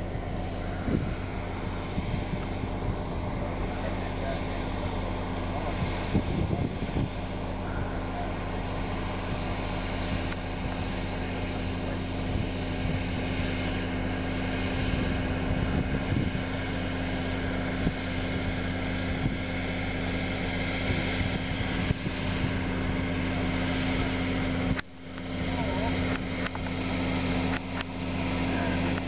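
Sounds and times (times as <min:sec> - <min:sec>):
tractor diesel engine droning: 0:00.0 - 0:29.0.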